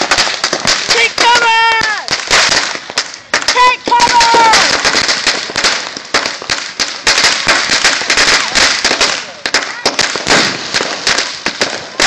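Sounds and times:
firecrackers banging and crackling: 0:00.0 - 0:12.0.

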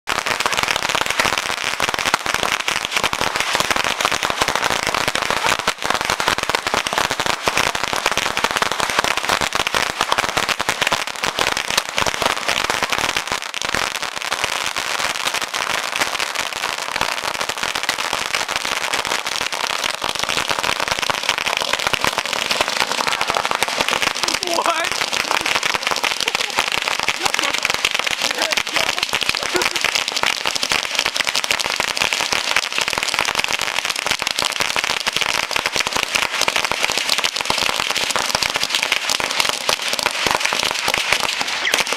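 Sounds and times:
bottle rockets crackling: 0:16.0 - 0:41.9.

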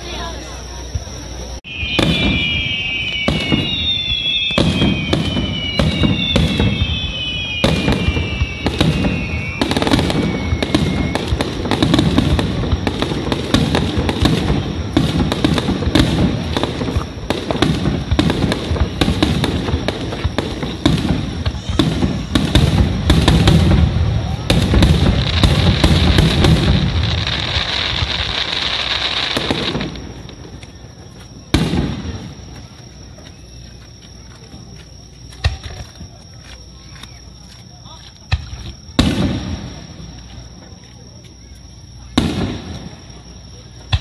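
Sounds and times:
firework whistles falling in pitch: 0:00.0 - 0:33.8, 0:41.4 - 0:44.0.

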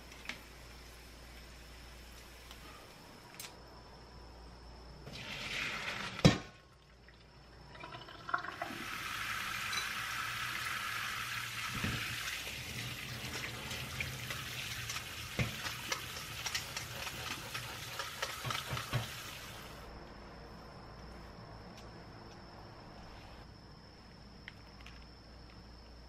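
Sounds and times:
tap water running into colander: 0:07.8 - 0:19.8.

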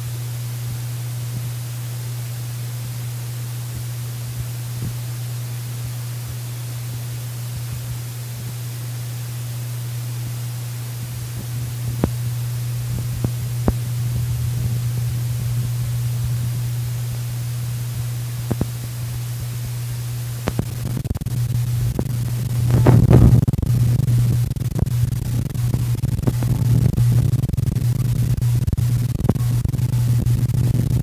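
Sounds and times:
low hum: 0:00.0 - 0:31.0.

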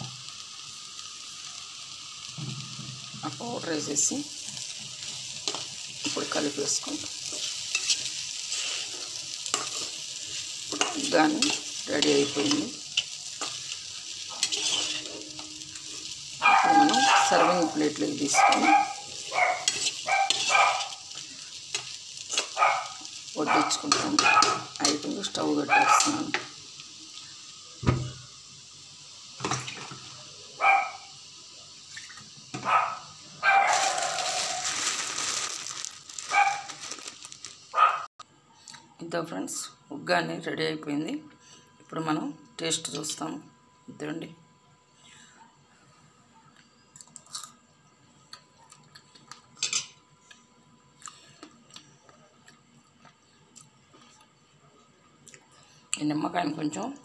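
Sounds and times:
steady hiss: 0:00.0 - 0:38.0
dog barking: 0:16.4 - 0:21.0, 0:22.5 - 0:24.7, 0:25.7 - 0:26.2, 0:30.6 - 0:31.1, 0:32.6 - 0:34.6, 0:36.3 - 0:36.8, 0:37.8 - 0:38.1.

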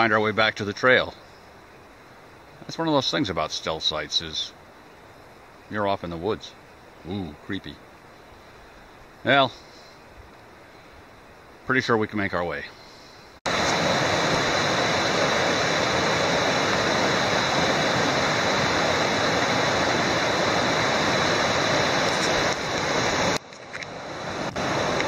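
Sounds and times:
river rushing through rapids: 0:13.5 - 0:25.0.

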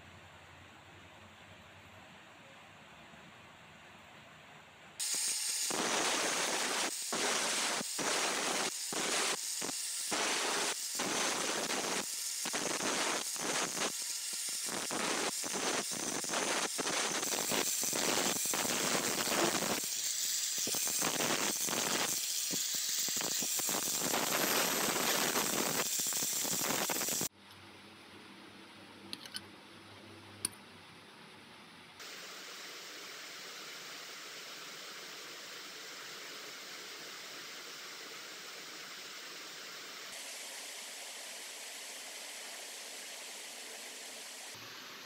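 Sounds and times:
angle grinder cutting steel: 0:05.0 - 0:27.3.

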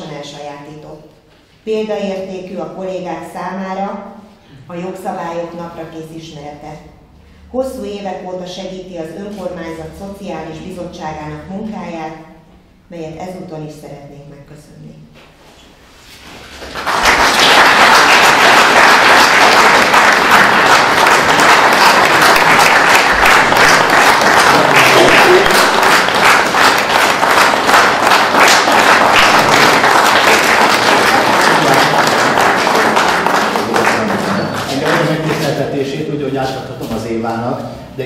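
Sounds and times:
audience applauding: 0:16.6 - 0:35.5.

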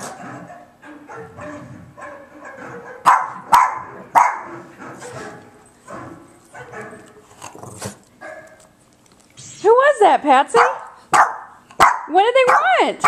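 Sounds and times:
dog barking: 0:00.4 - 0:04.5, 0:08.2 - 0:08.6, 0:10.6 - 0:12.8.

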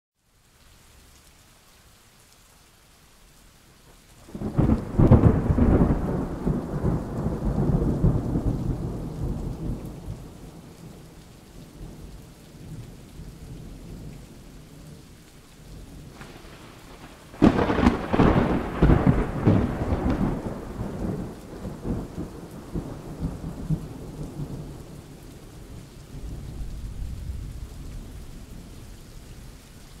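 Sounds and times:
steady rain: 0:00.2 - 0:30.0
thunder rolling: 0:04.3 - 0:10.7, 0:16.0 - 0:24.7.

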